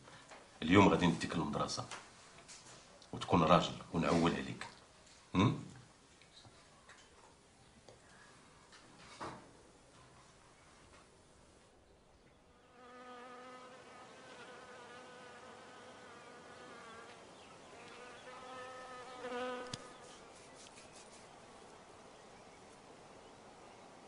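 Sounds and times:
flying insect buzzing: 12.6s - 17.2s, 17.8s - 20.3s.

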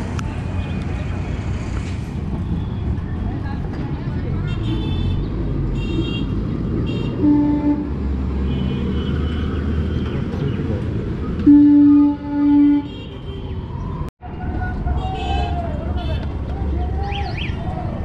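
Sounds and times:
street traffic rumbling: 0.0s - 18.0s
vehicle horn honking: 5.8s - 10.1s, 11.4s - 13.5s.

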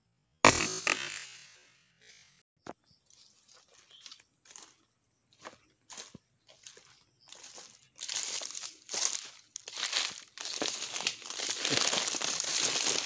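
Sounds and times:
footsteps crunching on dry leaves: 3.1s - 4.8s, 5.4s - 13.0s.

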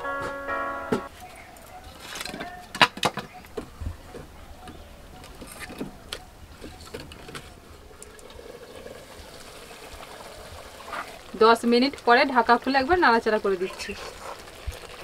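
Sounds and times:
firewood sticks knocking and clicking: 2.0s - 7.5s.

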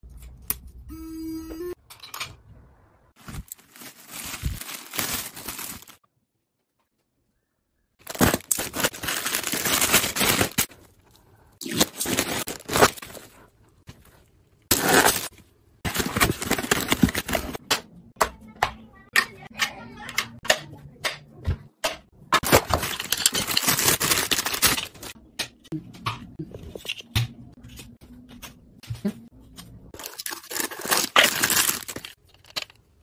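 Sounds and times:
plastic packaging crinkling: 3.2s - 6.0s, 8.0s - 10.9s, 11.6s - 13.5s, 15.9s - 17.6s, 22.4s - 25.2s, 30.0s - 32.2s.

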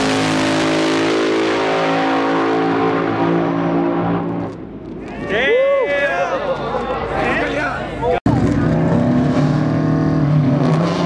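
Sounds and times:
race car engine at full throttle: 0.0s - 5.1s, 8.2s - 11.0s.

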